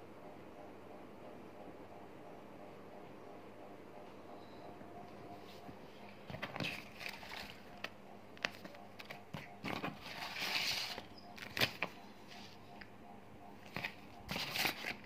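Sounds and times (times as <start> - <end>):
packaging rustling: 6.3 - 11.9, 13.7 - 15.0
packaging being handled: 6.3 - 12.0, 13.6 - 15.0.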